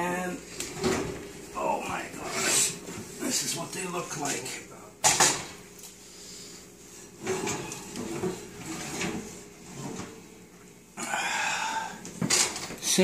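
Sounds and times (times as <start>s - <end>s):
oven door and rack clattering: 5.0s - 5.6s, 7.2s - 10.3s
metal rack scraping: 7.2s - 10.2s.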